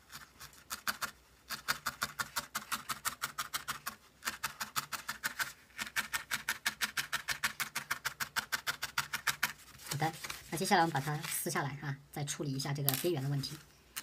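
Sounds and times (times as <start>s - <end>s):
felting needle stabbing foam: 0.0s - 10.2s.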